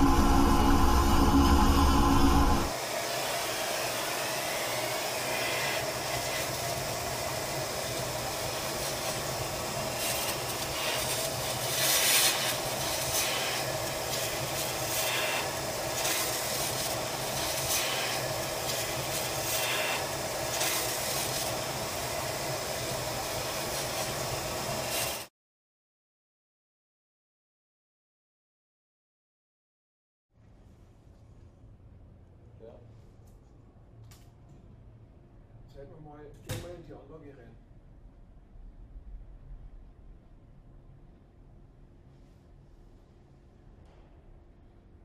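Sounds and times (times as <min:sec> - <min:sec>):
milling machine hum: 0:00.0 - 0:11.6
hissing cutting noise: 0:00.0 - 0:25.3.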